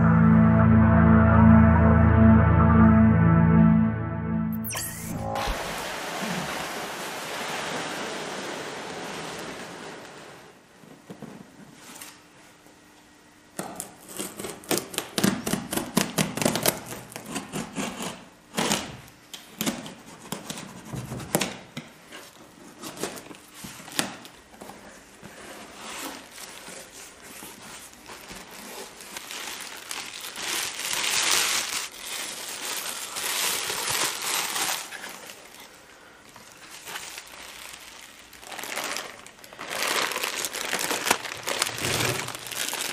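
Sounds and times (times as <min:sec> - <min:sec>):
background music: 0:00.0 - 0:05.8
bubble wrap crinkling: 0:23.0 - 0:42.9.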